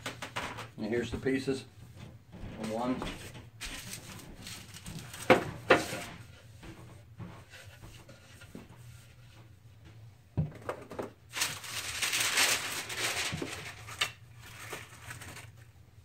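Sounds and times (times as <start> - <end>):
packing sheet rustling: 3.6 - 6.1, 11.3 - 15.7.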